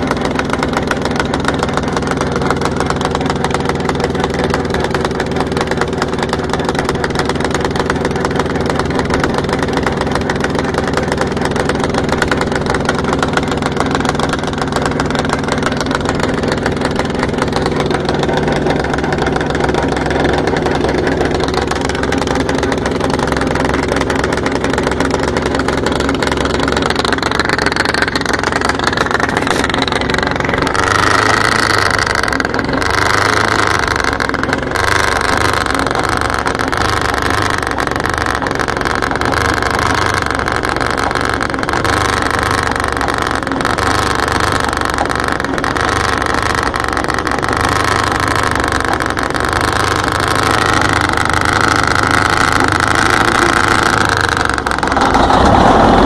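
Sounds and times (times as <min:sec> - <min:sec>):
diesel engine running: 0:00.0 - 0:56.0.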